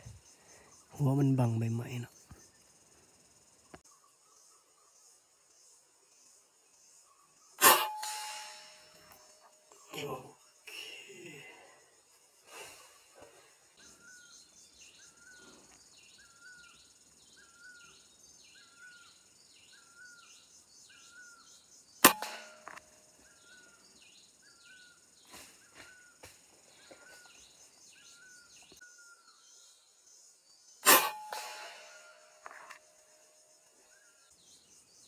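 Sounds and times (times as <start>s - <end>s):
faint chirping call: 6.8s - 35.0s
air rifle shot: 30.9s - 32.5s.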